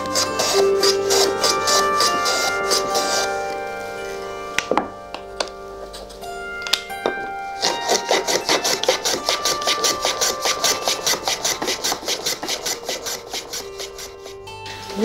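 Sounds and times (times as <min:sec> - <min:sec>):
wood scraping on workbench: 0:00.0 - 0:03.4, 0:07.6 - 0:14.4
soft background music: 0:00.0 - 0:15.0.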